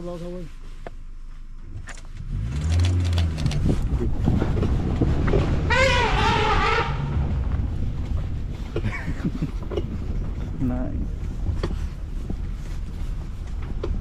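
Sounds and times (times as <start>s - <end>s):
vehicle engine running: 0.0s - 14.0s
elephant trumpeting: 5.6s - 7.3s.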